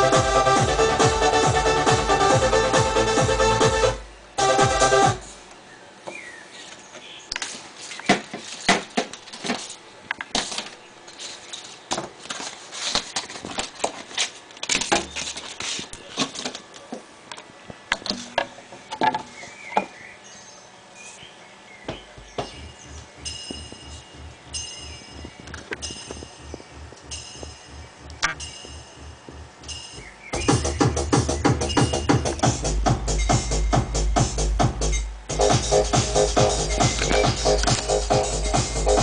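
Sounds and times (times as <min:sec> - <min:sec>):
quiet techno beat: 0:00.0 - 0:05.2, 0:22.0 - 0:39.0
vinyl records and turntable handled: 0:07.4 - 0:17.1.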